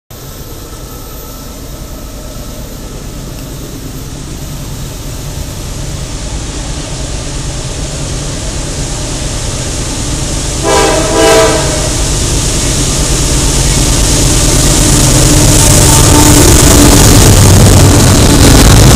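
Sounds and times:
locomotive engines rumbling: 0.1s - 18.9s
locomotive horn blasts: 10.6s - 12.0s, 15.8s - 16.6s.

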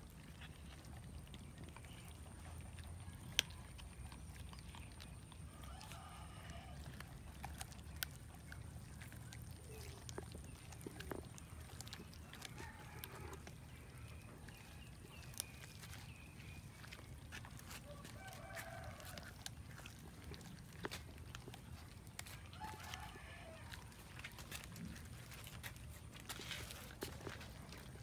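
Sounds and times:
cats chewing and tearing meat: 0.0s - 28.0s
teeth crunching on bone: 0.0s - 28.0s
faint drawn-out animal call: 5.5s - 7.0s.

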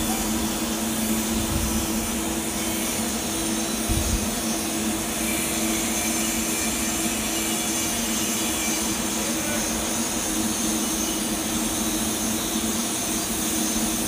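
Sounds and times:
machine drone: 0.0s - 14.0s
welding arc hiss: 0.0s - 14.0s.

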